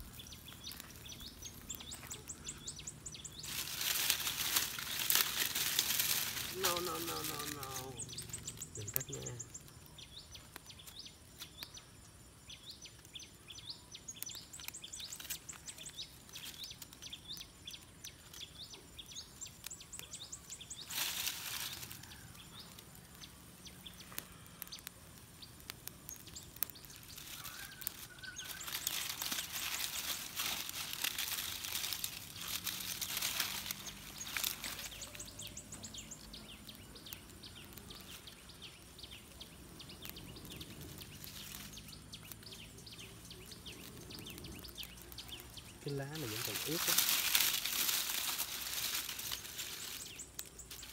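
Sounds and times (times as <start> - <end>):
rustling noise: 0.0 - 9.1, 19.9 - 22.8, 25.9 - 36.3, 40.0 - 50.9
small birds chirping: 0.0 - 50.9.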